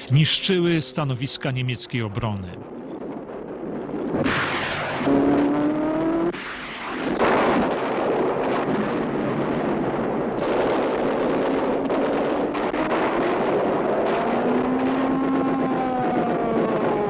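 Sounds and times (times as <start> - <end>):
engine drone rising in pitch: 0.0 - 2.3, 4.8 - 6.4, 14.0 - 17.0
loud rush of engine noise: 4.9 - 6.4.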